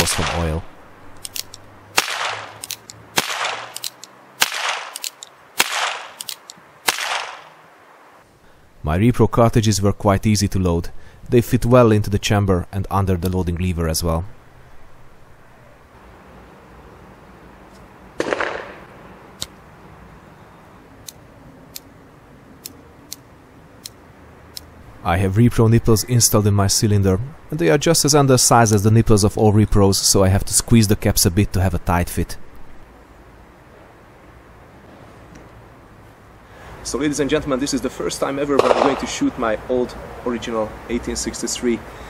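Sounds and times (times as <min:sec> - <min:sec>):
percussion caps cracking: 0:01.1 - 0:07.5
revolver hammer cocking click: 0:01.2 - 0:07.4.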